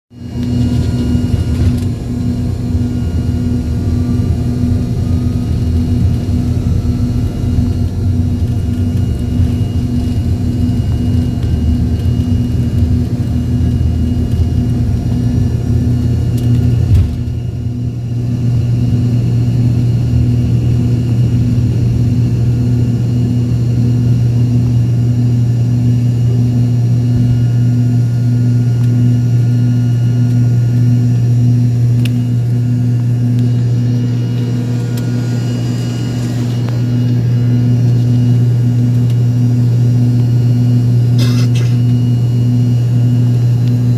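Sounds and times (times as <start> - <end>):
jet engines droning in cabin: 0.1 - 43.9.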